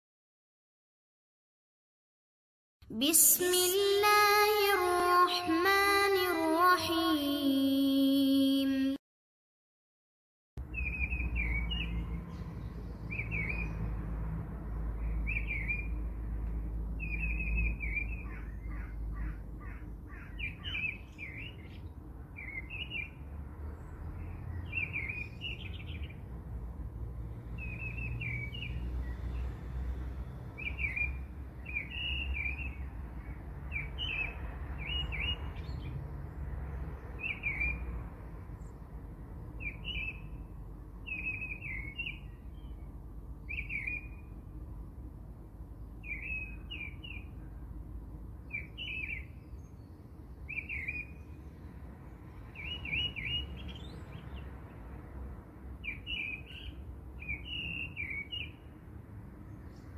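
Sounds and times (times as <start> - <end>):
small birds chirping: 10.6 - 14.0, 14.7 - 26.3, 27.5 - 29.6, 30.3 - 37.9, 38.5 - 44.4, 45.6 - 54.8, 55.8 - 58.8.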